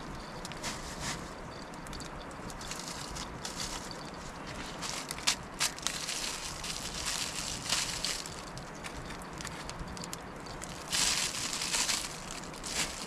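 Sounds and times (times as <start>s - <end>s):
wood fire crackling: 0.0s - 13.0s
plastic bag crinkling: 2.6s - 9.8s, 10.5s - 13.0s.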